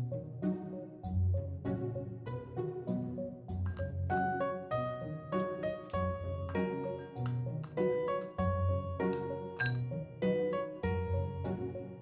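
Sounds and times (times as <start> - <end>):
light keyboard tune: 3.7 - 10.5.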